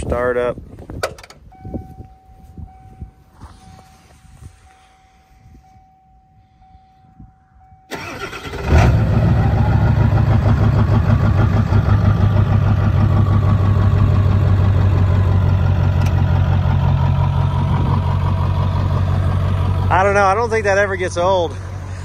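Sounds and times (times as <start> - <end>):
diesel engine cranking and idling: 7.6 - 22.0.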